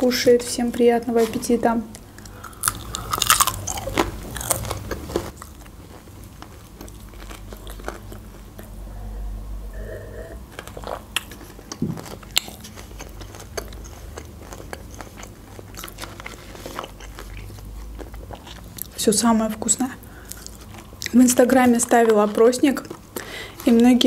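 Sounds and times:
chewing: 0:02.2 - 0:08.8, 0:10.5 - 0:19.0, 0:20.1 - 0:23.9
crunching fried chicken: 0:02.2 - 0:08.8, 0:10.5 - 0:19.0.

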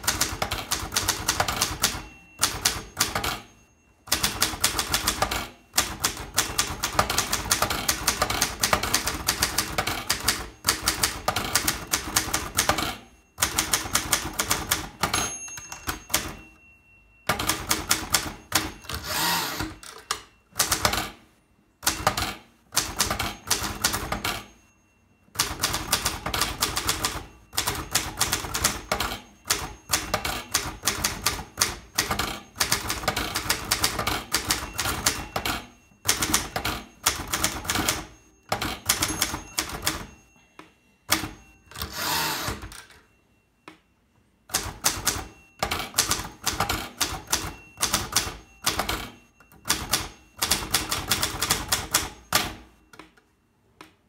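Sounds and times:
typewriter key strikes: 0:00.0 - 0:03.4, 0:04.1 - 0:16.4, 0:44.5 - 0:52.6
typewriter carriage return: 0:00.0 - 0:16.5, 0:17.3 - 0:21.2, 0:21.8 - 0:24.6, 0:25.3 - 0:40.2, 0:41.1 - 0:43.1, 0:44.5 - 0:52.7.

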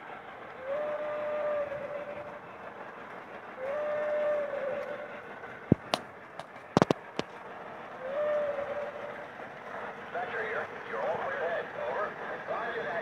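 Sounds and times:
toy train steam whistle: 0:00.0 - 0:05.7, 0:07.9 - 0:09.3
model train running on track: 0:00.0 - 0:13.0.

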